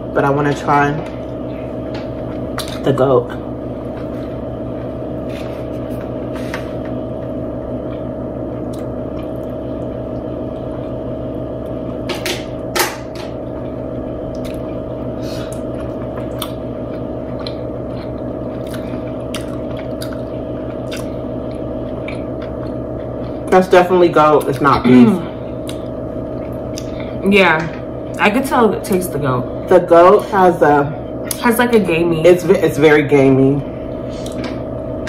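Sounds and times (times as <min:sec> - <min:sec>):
steady background hum: 0:00.0 - 0:35.0
chewing mouth sounds: 0:14.3 - 0:23.4.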